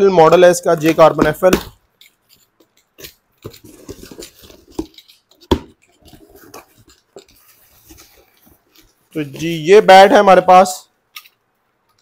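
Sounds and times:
cardboard and tape rustling: 0.6 - 10.2.

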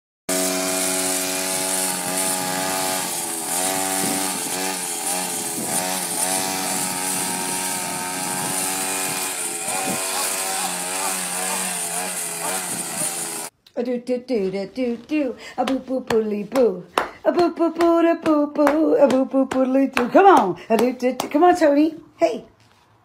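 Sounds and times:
string trimmer engine cutting grass: 0.3 - 13.6.

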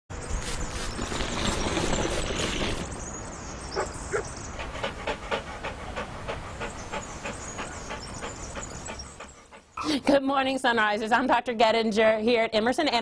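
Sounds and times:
small dog panting: 3.8 - 9.8.

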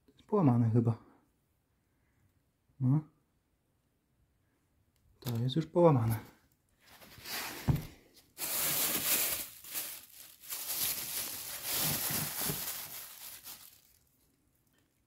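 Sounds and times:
plastic bag rustling: 6.8 - 14.2.

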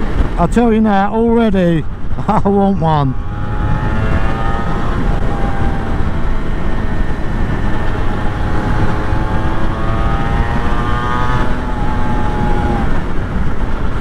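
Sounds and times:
wind rumble on microphone: 0.0 - 14.0
motorcycle engine revving: 2.2 - 14.0.

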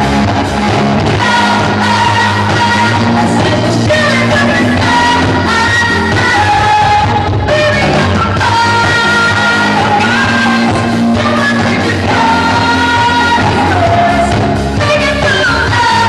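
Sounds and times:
live pop-rock band: 0.0 - 16.0.

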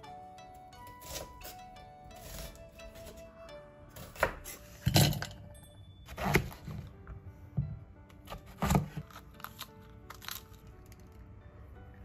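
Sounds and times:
light background music: 0.0 - 12.0.

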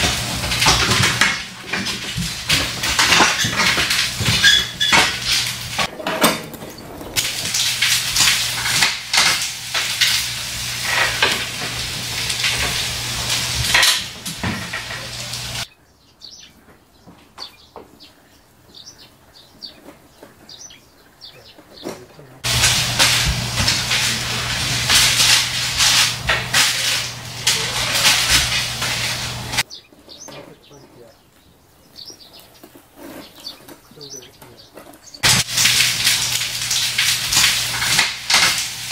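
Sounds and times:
meat sizzling on a grill pan: 0.0 - 5.9, 7.1 - 15.7, 22.4 - 29.6, 35.2 - 38.9
metal tongs scraping foil: 0.0 - 15.7, 22.4 - 29.6, 35.2 - 38.9.

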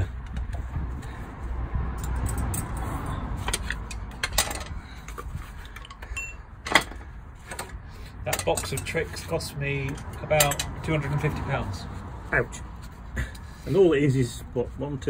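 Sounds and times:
hand tools clinking on metal: 3.4 - 11.1.

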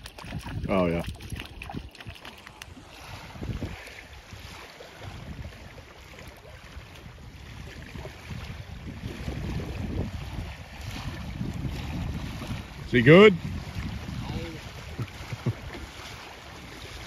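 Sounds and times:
fish splashing at surface: 0.0 - 5.2
river water lapping: 0.0 - 17.0
wind buffeting microphone: 0.0 - 17.0.

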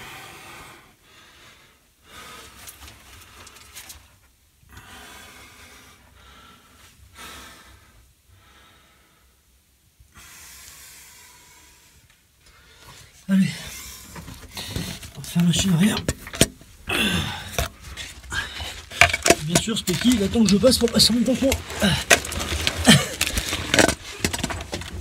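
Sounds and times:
person breathing heavily: 0.0 - 3.7, 10.1 - 15.2, 16.8 - 19.4, 21.4 - 24.2.

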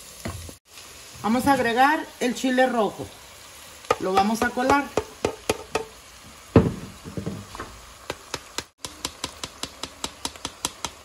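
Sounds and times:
louder thump: 6.5 - 7.8.

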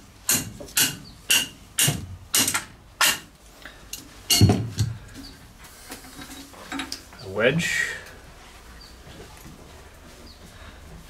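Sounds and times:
ringing metal-on-metal taps: 4.3 - 4.9
heavy metal knocks: 4.3 - 5.0.

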